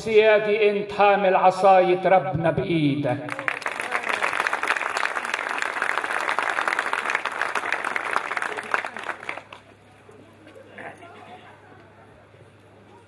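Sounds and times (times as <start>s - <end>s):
audience applauding: 3.3s - 9.9s.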